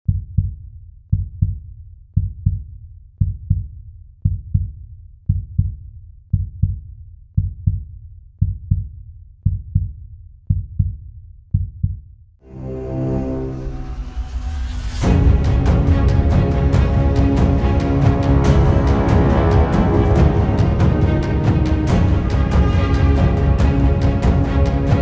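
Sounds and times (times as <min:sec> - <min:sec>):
heartbeat thumps: 0:00.1 - 0:12.1.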